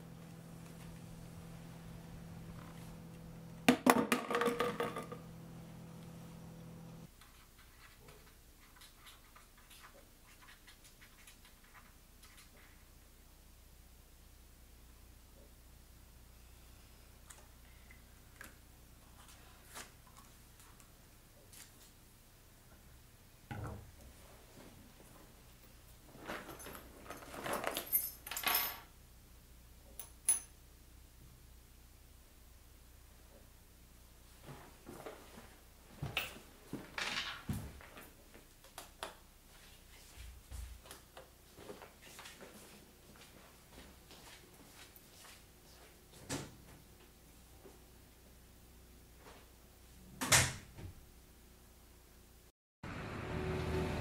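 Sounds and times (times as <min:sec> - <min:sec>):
low hum: 0:00.0 - 0:03.7, 0:04.7 - 0:07.1, 0:52.8 - 0:54.0
keys clinking on tabletop: 0:26.3 - 0:28.9, 0:30.0 - 0:30.6.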